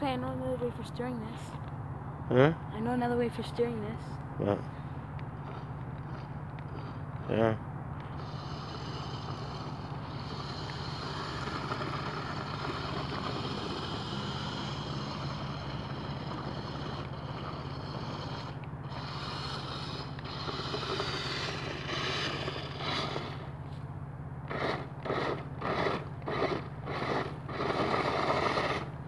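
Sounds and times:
toy truck electric motor whirring: 5.4s - 23.7s, 24.4s - 29.0s.

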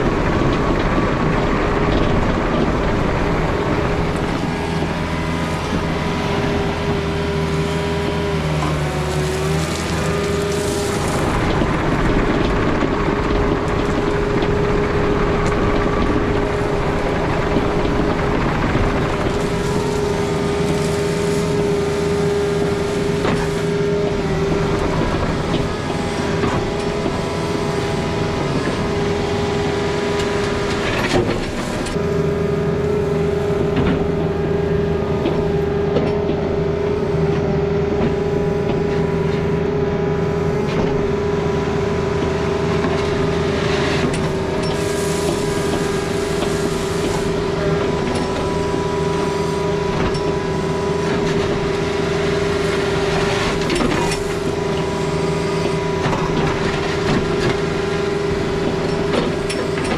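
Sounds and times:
constant whine: 0.0s - 59.9s
heavy diesel equipment running: 0.0s - 59.9s
hiss: 44.8s - 47.3s.

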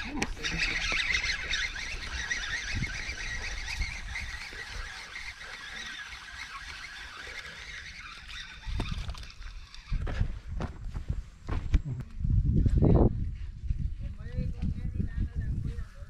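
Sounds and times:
flock of birds calling: 0.0s - 9.2s.

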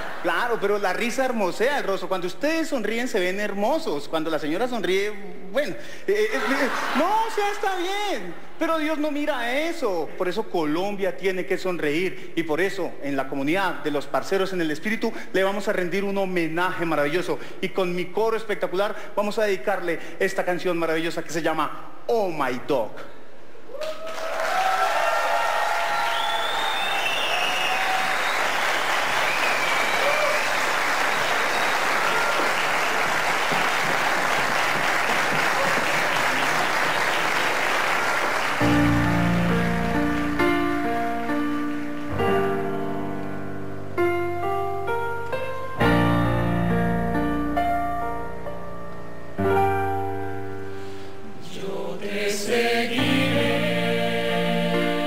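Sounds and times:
audience applauding: 0.0s - 0.8s, 23.8s - 42.2s
audience shouts and whistles: 23.8s - 33.0s
grand piano chords: 37.9s - 55.0s
music: 38.6s - 55.0s
choir singing: 51.4s - 55.0s.

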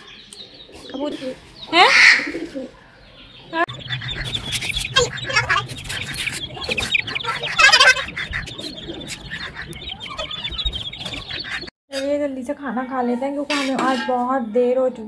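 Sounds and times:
chicks cheeping: 0.0s - 11.7s.

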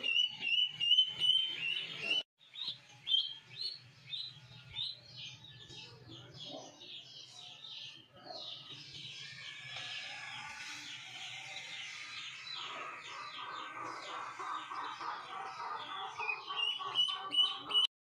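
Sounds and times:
duckling peeping: 12.4s - 17.9s.

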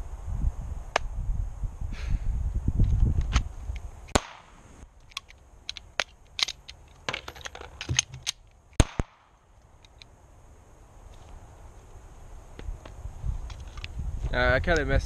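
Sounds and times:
pistol shot echoing: 4.1s - 4.6s, 8.8s - 9.3s
metallic clicks and clacks of pistol: 5.0s - 10.1s.

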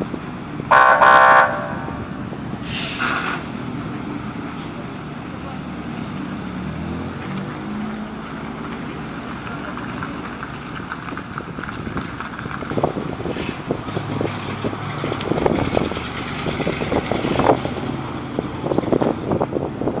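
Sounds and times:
fire truck engines running: 0.0s - 20.0s
car driving by: 0.7s - 4.8s.

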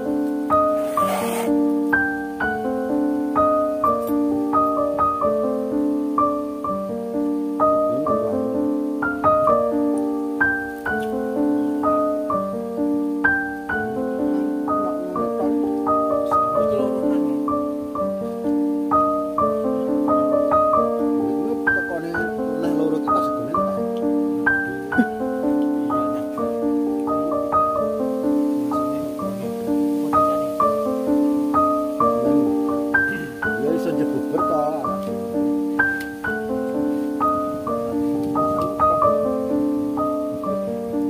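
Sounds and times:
soft piano melody: 0.0s - 41.0s.

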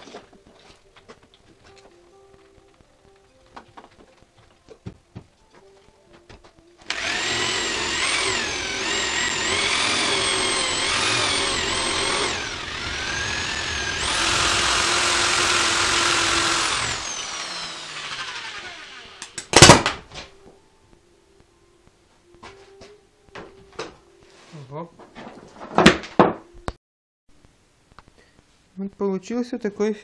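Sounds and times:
electric drill whining: 6.8s - 19.5s.

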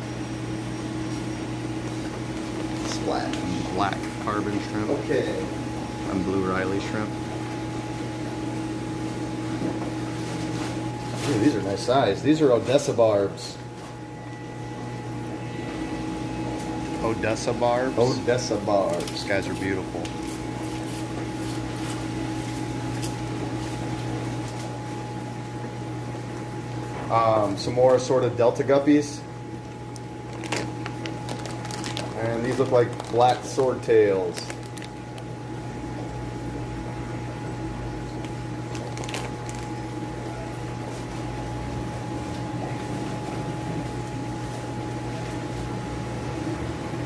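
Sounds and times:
aquarium pumps humming: 0.0s - 47.0s
bags and boxes rustling: 30.3s - 33.6s, 38.7s - 39.8s.

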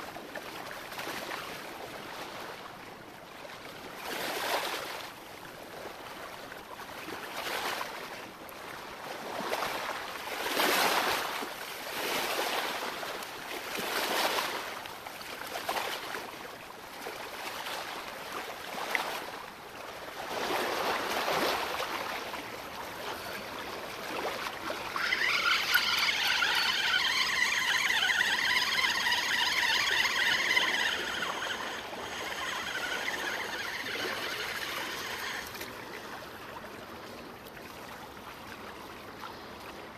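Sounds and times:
waves washing against rocks: 20.1s - 36.0s
high-pitched wavering sound: 24.8s - 35.6s.

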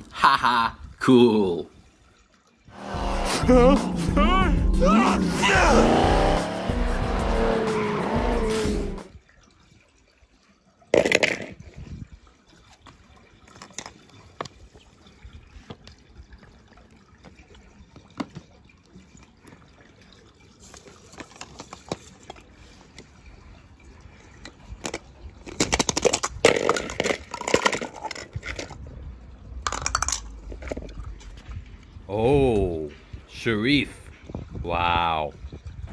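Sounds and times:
cartoon car engine: 2.8s - 9.1s
music: 2.8s - 9.1s
tyre skid: 2.8s - 9.1s
toy car splashing in water: 10.8s - 11.8s, 17.8s - 23.0s, 24.4s - 28.9s, 29.5s - 31.3s.

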